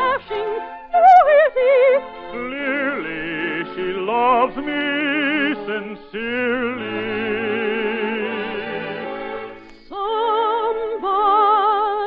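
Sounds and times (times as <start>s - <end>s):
operetta singer with vibrato: 0.0s - 9.3s, 9.9s - 12.0s
orchestra accompaniment: 1.8s - 9.9s.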